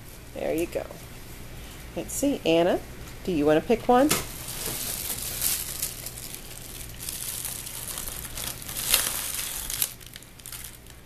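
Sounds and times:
gift packaging crinkling: 0:04.4 - 0:11.0.

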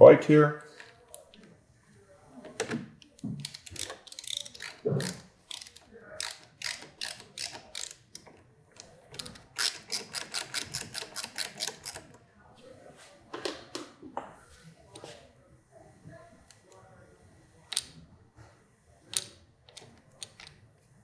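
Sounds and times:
ratcheting screwdriver clicking: 0:02.6 - 0:12.2.

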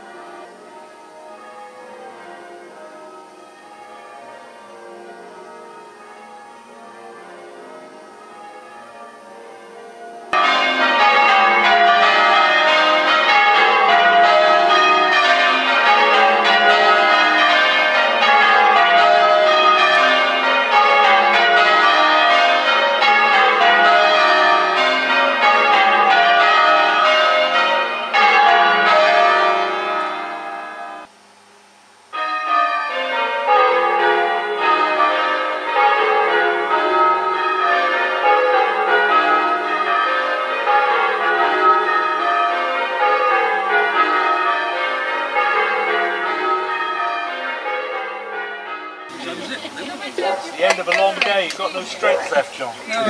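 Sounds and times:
church bells change-ringing: 0:00.0 - 0:31.1, 0:32.1 - 0:53.0.

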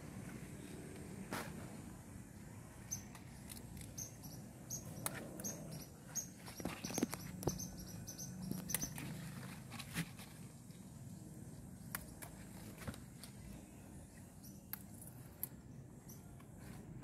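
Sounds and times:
plants rustling and crackling: 0:06.1 - 0:07.6, 0:08.4 - 0:11.0.

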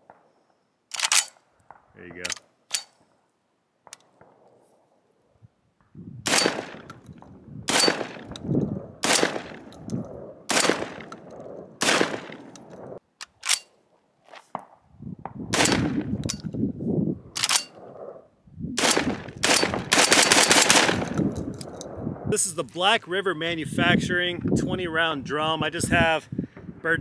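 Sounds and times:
shotgun shots: 0:06.2 - 0:06.9, 0:07.7 - 0:08.4, 0:09.0 - 0:09.7, 0:10.5 - 0:12.6, 0:15.5 - 0:16.2, 0:18.8 - 0:21.3.

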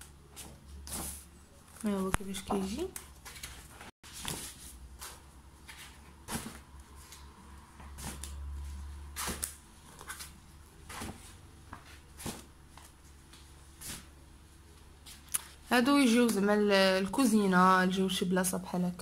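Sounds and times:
large pages turning: 0:00.3 - 0:14.1.

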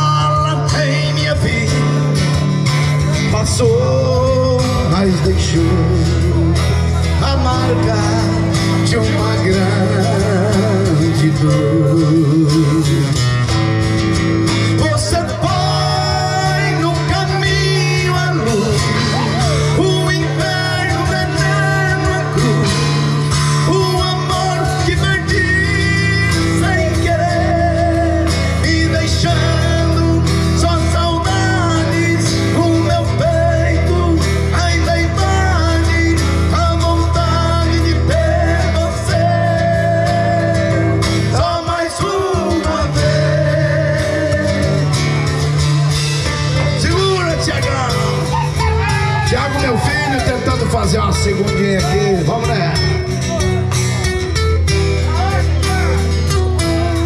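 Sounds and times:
bass line: 0:00.0 - 0:57.0
guitar: 0:00.0 - 0:57.0
person singing: 0:14.5 - 0:45.2.

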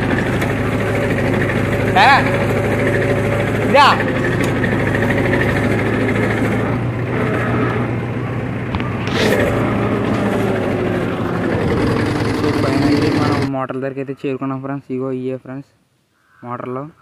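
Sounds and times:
tractor diesel engine running: 0:00.0 - 0:13.5.

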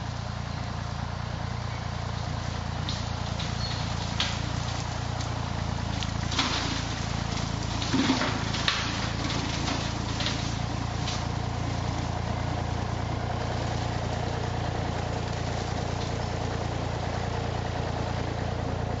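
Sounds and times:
tractor engine running: 0:00.0 - 0:19.0.

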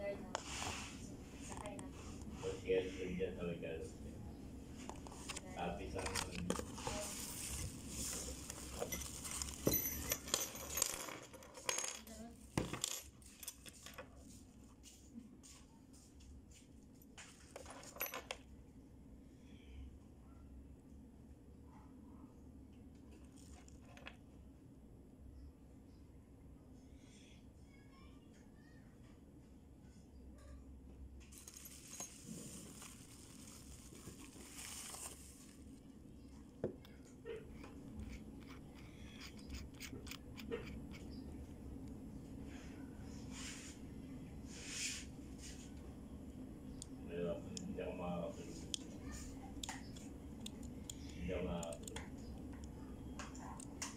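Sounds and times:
metal tools clinking on wood: 0:08.6 - 0:14.0, 0:17.6 - 0:18.4, 0:31.3 - 0:32.9
bubble wrap crinkling: 0:31.3 - 0:35.8.

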